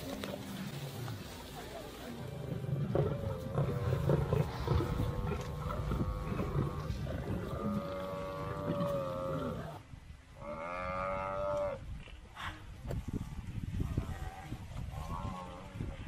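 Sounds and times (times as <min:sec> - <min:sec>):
low rumble: 0:00.4 - 0:10.1.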